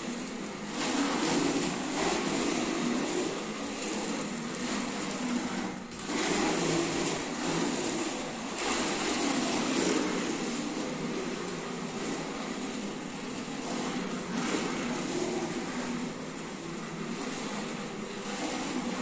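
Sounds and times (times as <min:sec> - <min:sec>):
toy car wheels rolling on floor: 0:00.0 - 0:19.0.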